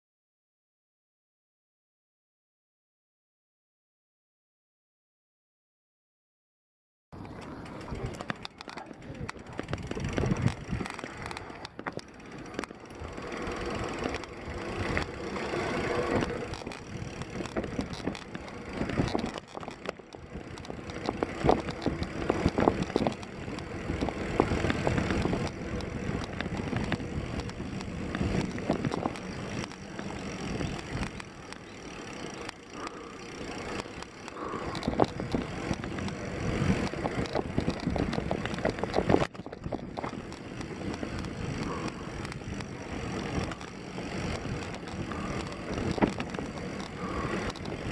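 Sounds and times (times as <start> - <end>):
bike knocking and rattling: 7.2 - 47.9
bike tyres on dirt: 7.2 - 47.9.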